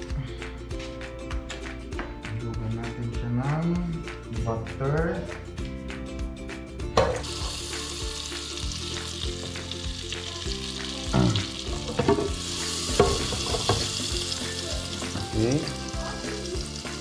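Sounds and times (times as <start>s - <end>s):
quiet background music: 0.0s - 17.0s
butter sizzling in a pot: 7.0s - 17.0s.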